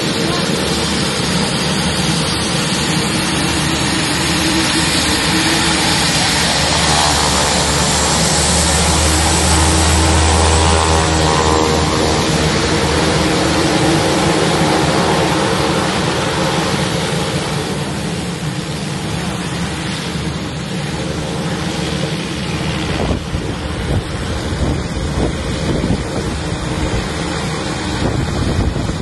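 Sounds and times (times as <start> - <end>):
turboprop engines running: 0.0 - 29.0
wind buffeting microphone: 0.0 - 29.0.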